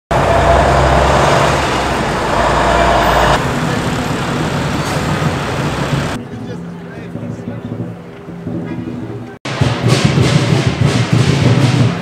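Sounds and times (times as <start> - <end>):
heavy vehicle engine rumble: 0.1 - 9.4
city street traffic: 0.1 - 12.0.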